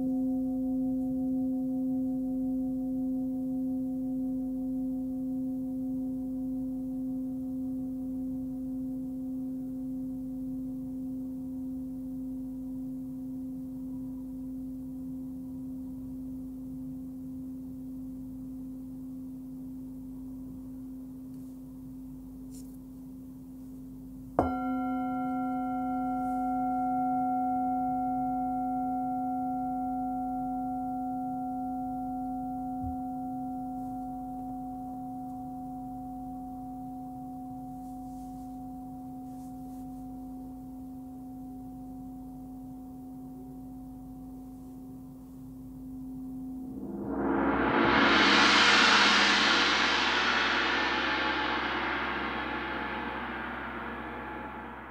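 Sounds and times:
singing bowl ringing: 24.4s - 33.7s.

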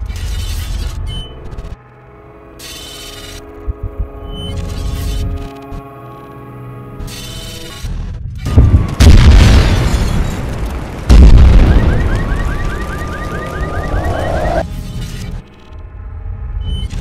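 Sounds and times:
explosions with deep rumble: 8.4s - 14.7s
warbling alarm tone: 11.5s - 14.7s.

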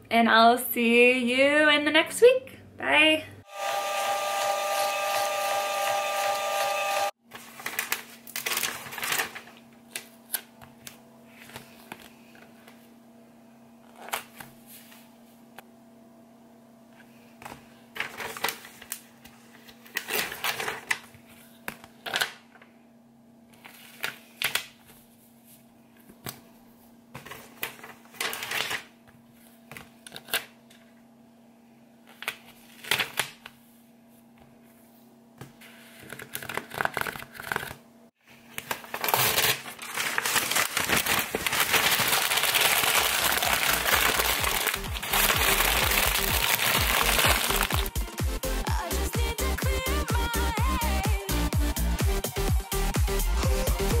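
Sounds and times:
paper rustling and sliding: 7.3s - 10.2s, 13.8s - 15.4s, 17.4s - 21.6s, 23.6s - 25.6s, 35.6s - 47.8s.

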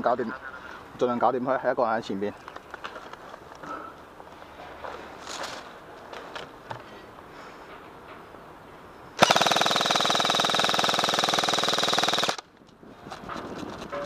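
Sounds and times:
airsoft rifle full-auto burst: 9.2s - 12.4s.

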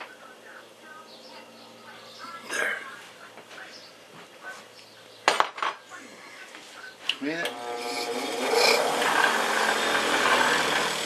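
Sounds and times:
rotary tool whining: 7.4s - 11.0s.

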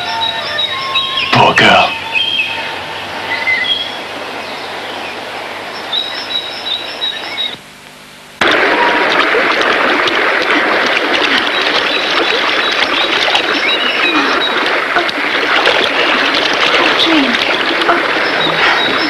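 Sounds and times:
waterfall rushing into pool: 8.4s - 19.0s.

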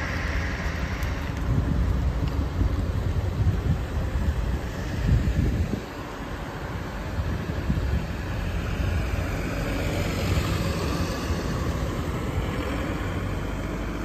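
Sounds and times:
heavy vehicle engines rumbling: 0.0s - 14.0s
tyre and road noise: 0.0s - 14.0s.

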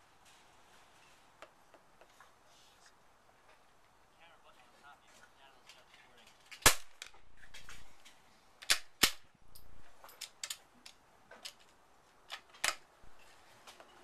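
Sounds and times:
rifle shot: 6.6s - 7.0s, 8.7s - 9.3s.

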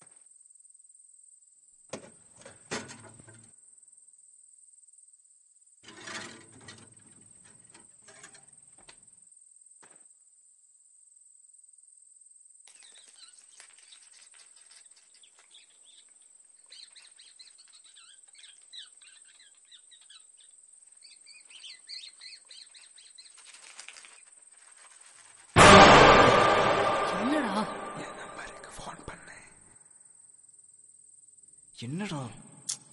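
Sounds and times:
faint rustling: 20.8s - 25.6s
high-pitched whine: 25.6s - 28.9s.

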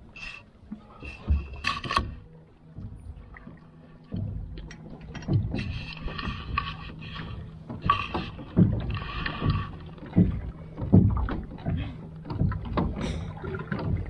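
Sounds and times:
paddle splashing through water: 2.8s - 14.0s.

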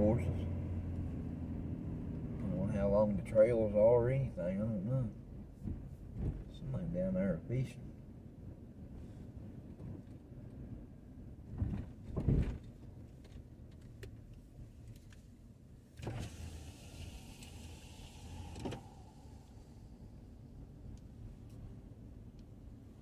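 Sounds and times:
car rolling rumble: 0.0s - 23.0s
power window motor: 16.0s - 19.1s.

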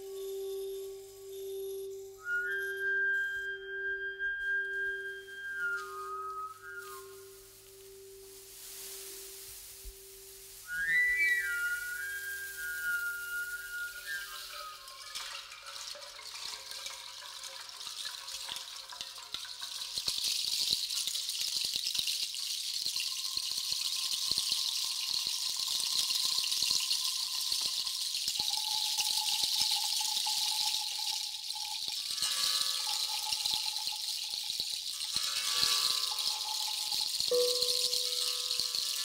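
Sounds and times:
shimmering metal jingle: 0.0s - 2.8s, 34.8s - 39.0s
held tone: 0.0s - 15.1s, 37.3s - 38.8s
grass stalks rustling: 4.5s - 15.8s.

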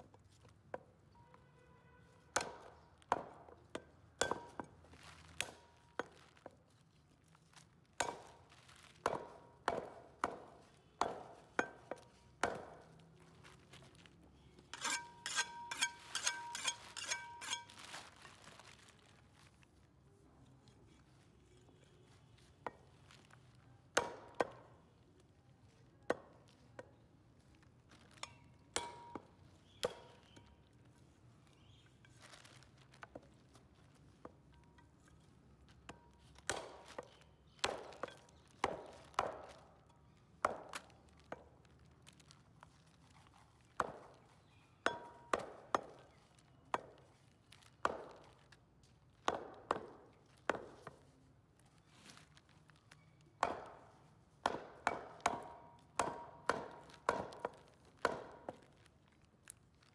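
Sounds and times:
cleaver chopping meat and bone: 2.3s - 3.4s, 8.0s - 8.4s, 9.0s - 13.0s, 23.9s - 24.7s, 36.4s - 39.6s, 40.4s - 41.4s, 43.8s - 46.0s, 47.6s - 48.4s, 49.2s - 51.0s, 53.4s - 58.8s.

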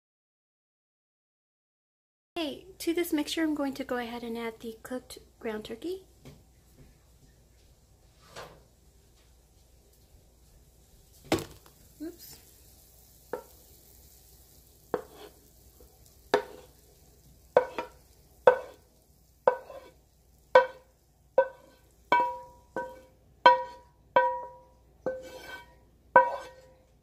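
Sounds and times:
wooden spoon knocking metal pan: 15.0s - 15.3s, 16.3s - 16.8s, 17.6s - 18.8s, 19.4s - 19.9s, 20.5s - 26.8s.

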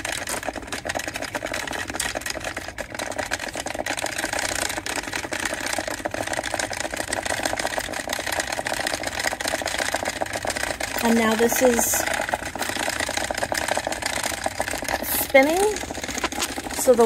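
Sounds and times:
stir bar rattling: 0.0s - 17.0s.

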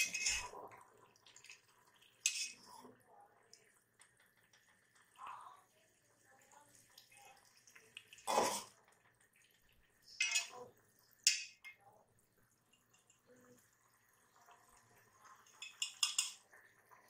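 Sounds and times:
metal spoon clattering in pot: 0.0s - 0.5s, 2.2s - 2.6s, 10.2s - 10.6s, 11.2s - 11.8s, 15.5s - 16.4s.

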